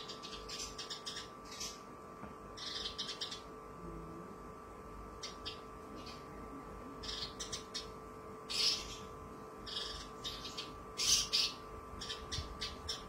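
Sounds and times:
lark singing harsh chirps: 0.0 - 1.9, 2.6 - 3.5, 7.0 - 13.0
faint steady hum: 0.0 - 13.0.

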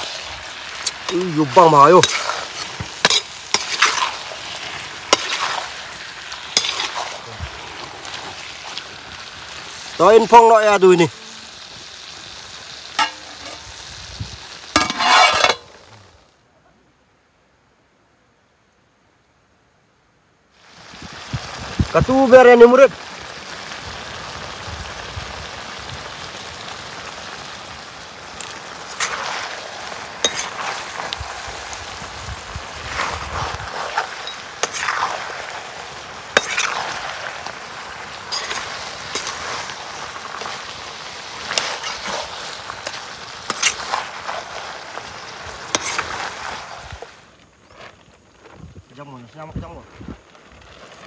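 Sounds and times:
curry sizzling: 0.0 - 16.3, 20.5 - 51.0
metal ladle scraping a pan: 2.0 - 8.4, 12.9 - 13.7, 14.8 - 15.8, 28.9 - 29.5, 30.2 - 31.0, 33.7 - 35.3, 36.3 - 37.1, 38.3 - 39.8, 41.4 - 44.6, 45.7 - 46.7.

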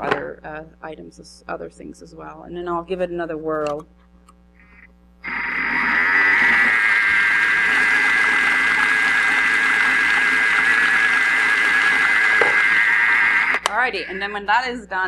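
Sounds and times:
food processor motor whining: 5.3 - 14.2.

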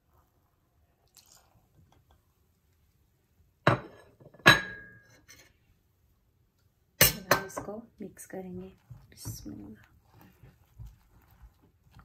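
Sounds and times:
soft splats of poured liquid: 0.9 - 2.3
ceramic cup clink: 3.7 - 5.0.

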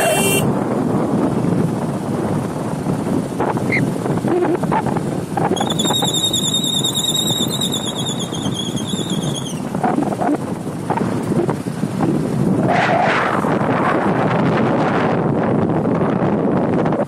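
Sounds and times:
vehicle road noise: 0.0 - 17.0
wind on microphone: 0.0 - 17.0
high wavering tone: 5.5 - 10.1.

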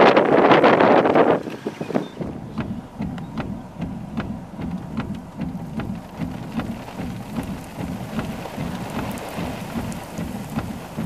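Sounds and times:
road and engine drone: 0.0 - 11.0
raindrops tapping on car: 0.5 - 11.0.

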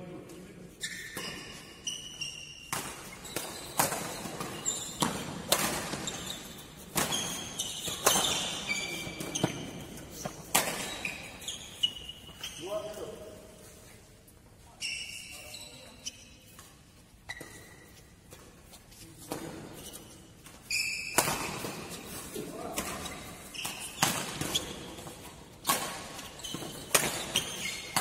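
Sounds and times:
shoe squeaks on court floor: 0.7 - 13.4, 14.6 - 25.3, 26.0 - 28.0
badminton rackets hitting shuttlecock: 2.4 - 12.4, 20.4 - 28.0.

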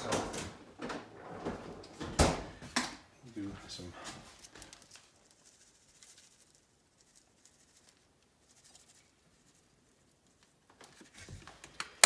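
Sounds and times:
grated cheese pattering: 4.2 - 11.1.

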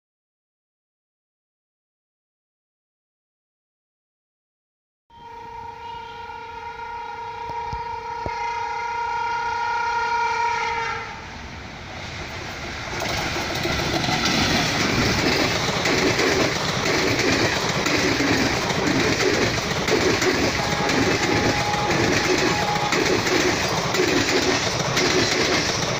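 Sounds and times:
train horn blast: 5.1 - 11.4, 20.3 - 23.6
train wheels clattering over joints: 12.9 - 25.9.

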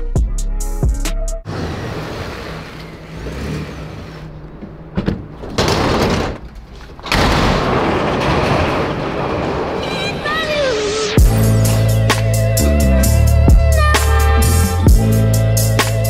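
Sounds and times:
road noise: 1.4 - 7.2
roll-up door being raised: 1.5 - 10.7.

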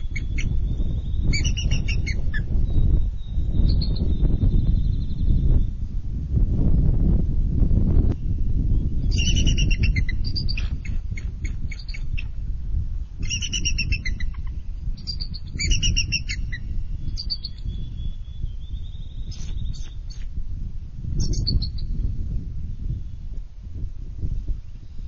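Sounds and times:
steady low rumble: 0.0 - 25.0
eagles piping chatter calls: 1.3 - 2.5, 9.1 - 12.3, 13.2 - 17.6.

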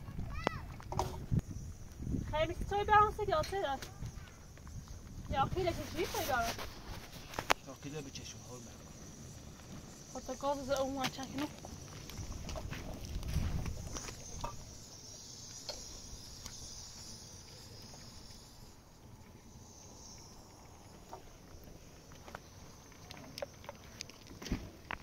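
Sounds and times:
footsteps on stony ground: 1.8 - 7.9, 8.8 - 14.9, 20.0 - 25.0.

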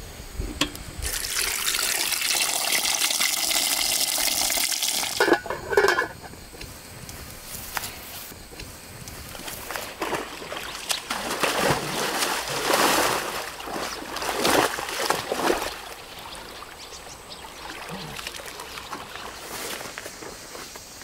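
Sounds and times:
water splashing and trickling: 1.0 - 5.2, 9.3 - 20.4
faint ticks: 6.5 - 9.3.

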